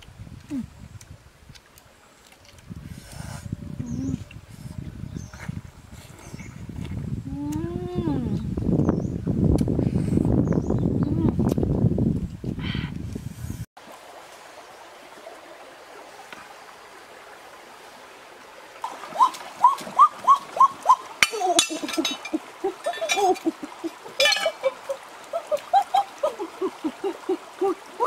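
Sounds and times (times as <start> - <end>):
running water hiss: 13.8 - 28.0
sharp clicks or splashes: 18.8 - 26.3
animal calling in rising chirps: 19.0 - 21.5.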